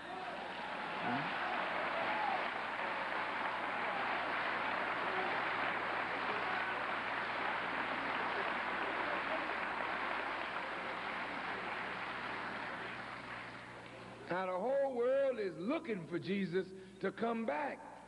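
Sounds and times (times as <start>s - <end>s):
audience applauding: 0.0s - 14.3s.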